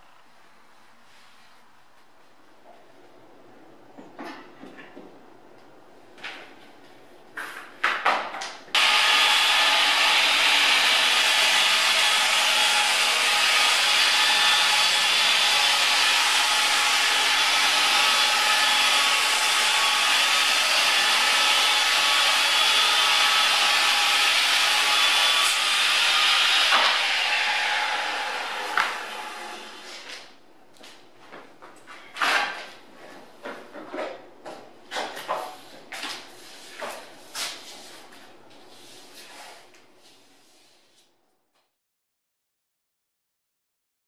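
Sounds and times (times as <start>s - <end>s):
circular saw cutting wood: 8.8s - 30.0s.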